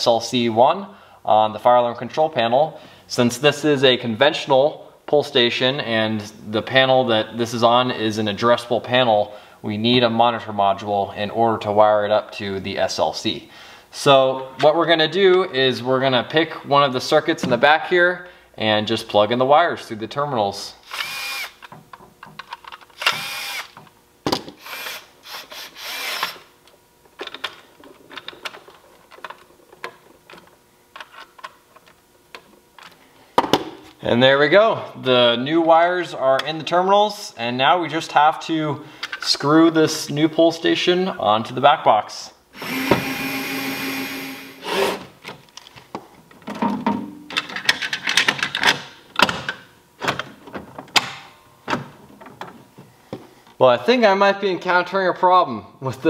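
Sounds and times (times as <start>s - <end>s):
electric screwdriver motor whine: 20.9s - 21.6s, 23.0s - 23.8s, 24.6s - 26.4s, 42.6s - 45.0s.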